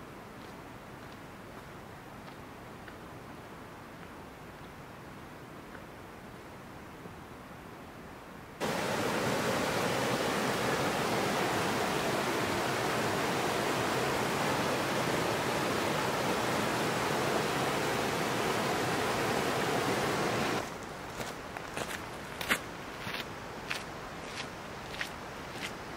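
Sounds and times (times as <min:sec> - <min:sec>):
creek rushing over rocks: 0:08.6 - 0:25.9.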